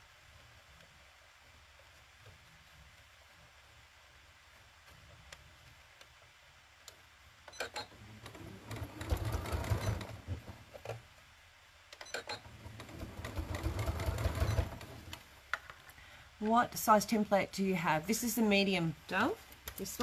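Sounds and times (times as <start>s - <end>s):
sewing machine stitching: 7.5s - 11.0s, 12.0s - 15.2s.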